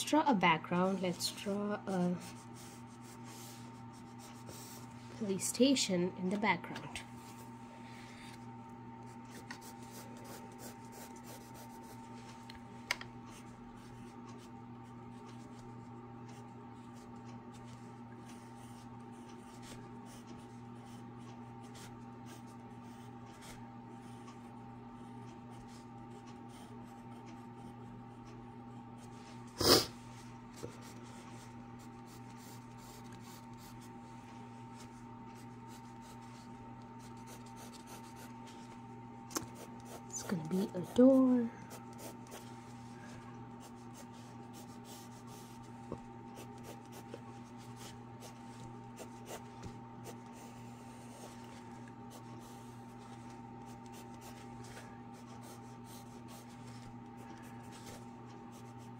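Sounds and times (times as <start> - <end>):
pencil scratching on paper: 1.0 - 4.9, 9.1 - 12.1, 18.3 - 24.3, 25.5 - 27.8, 30.6 - 33.9, 34.8 - 38.3, 39.4 - 42.4, 43.6 - 45.7, 46.3 - 51.5, 52.1 - 54.5, 55.1 - 56.8.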